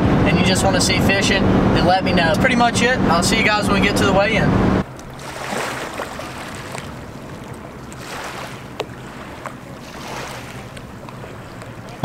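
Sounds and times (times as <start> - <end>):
waves lapping on gravel shore: 5.1 - 11.8.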